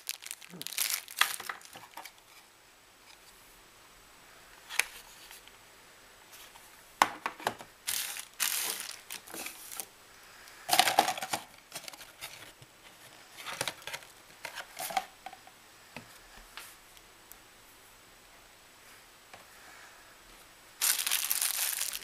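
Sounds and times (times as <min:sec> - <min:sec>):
plastic bags crinkling: 0:00.0 - 0:02.2, 0:07.8 - 0:09.9, 0:10.7 - 0:12.5, 0:20.8 - 0:22.0.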